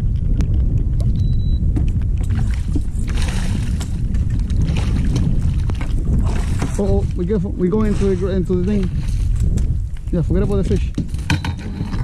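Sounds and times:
low rumble: 0.0s - 12.0s
fish splashing in water: 2.2s - 6.9s.

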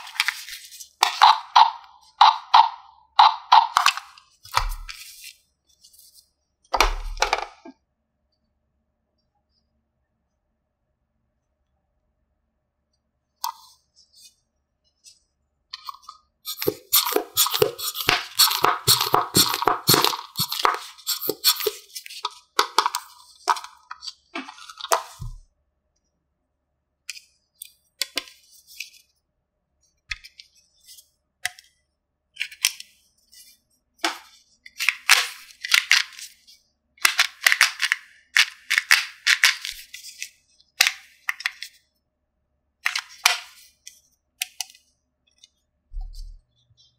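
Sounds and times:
plastic toy pieces clicking and rattling: 15.8s - 25.2s, 34.8s - 40.0s.

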